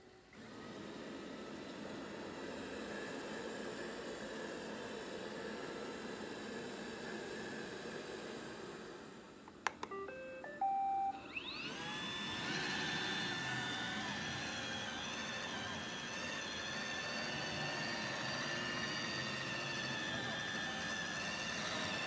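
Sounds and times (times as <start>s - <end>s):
robot vacuum click: 9.5s - 10.1s
stepped beeps: 9.8s - 11.2s
robot vacuum motors whining: 11.1s - 22.0s.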